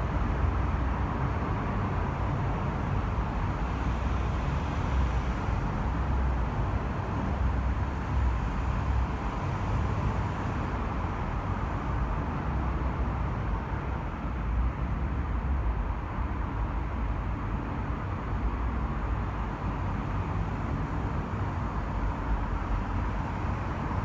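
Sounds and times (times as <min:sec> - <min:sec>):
expressway traffic passing: 0:00.0 - 0:24.0.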